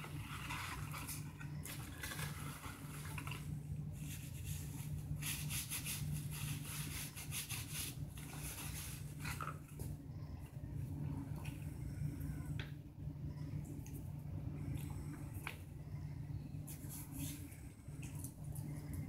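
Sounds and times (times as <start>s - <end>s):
paper wrappers rustling: 0.0s - 5.8s
steady low hum: 0.0s - 19.0s.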